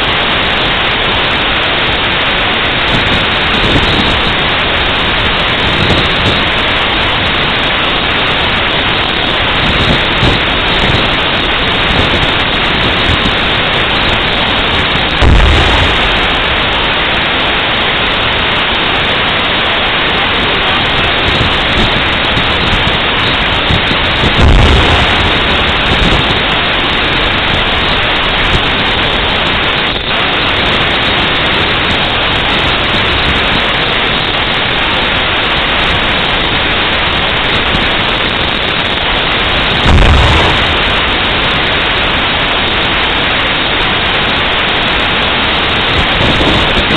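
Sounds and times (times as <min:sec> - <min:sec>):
constant loud hiss: 0:00.0 - 0:46.9
distant tank gun booms: 0:15.2 - 0:17.0, 0:24.4 - 0:26.3, 0:39.8 - 0:41.3.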